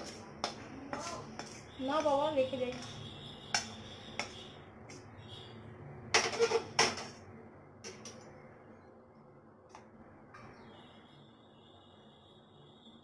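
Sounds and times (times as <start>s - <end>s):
metal tongs and wok clattering: 6.2s - 7.2s.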